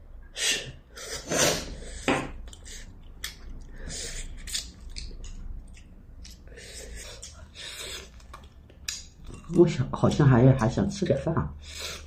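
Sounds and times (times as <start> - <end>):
people chewing: 1.8 - 10.8
chopsticks clicking against bowls: 4.5 - 6.4, 8.2 - 10.8.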